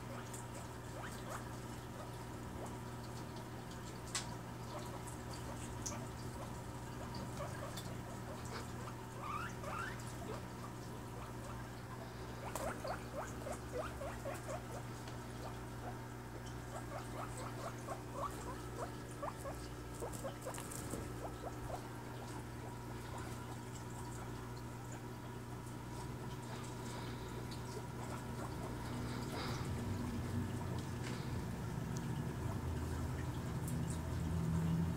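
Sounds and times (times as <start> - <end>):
guinea pig squeaking: 0.0 - 2.7, 4.8 - 10.5, 12.4 - 23.4, 28.0 - 29.5.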